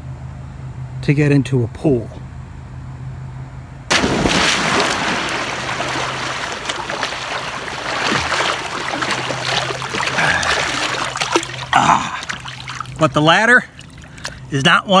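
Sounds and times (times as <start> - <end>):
water splashing from swimming: 3.9 - 14.5.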